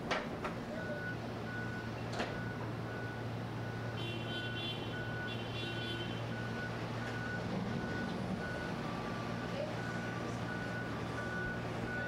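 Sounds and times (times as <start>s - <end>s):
electronic warning beeps: 9.8s - 12.0s.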